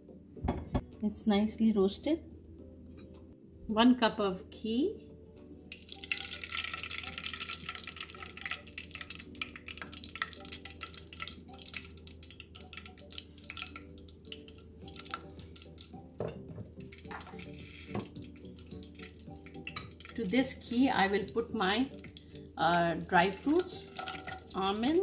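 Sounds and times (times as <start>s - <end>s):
liquid pouring into saucepan: 5.4s - 25.0s.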